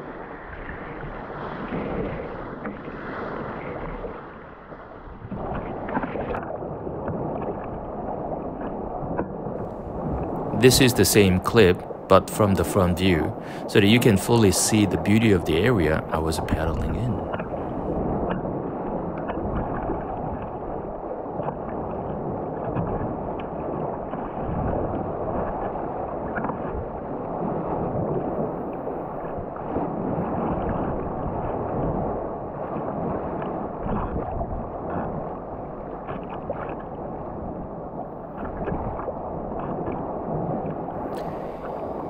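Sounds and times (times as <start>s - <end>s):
paddle splashes: 0.4s - 42.0s
water sloshing around kayak: 29.2s - 42.0s.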